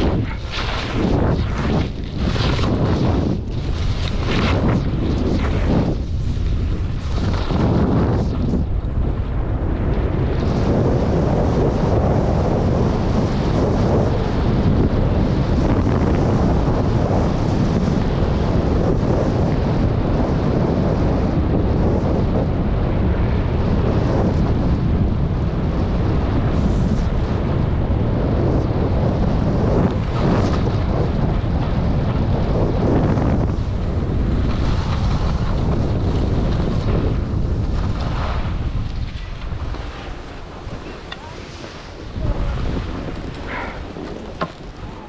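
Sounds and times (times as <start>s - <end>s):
skis scraping over snow: 0.0s - 9.2s, 28.2s - 45.0s
wind rumbling on microphone: 0.0s - 45.0s.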